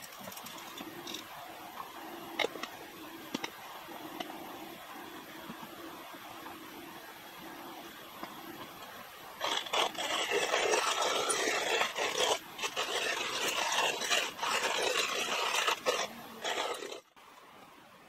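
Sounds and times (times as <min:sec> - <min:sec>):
coffee mill grinding beans: 0:09.4 - 0:17.1.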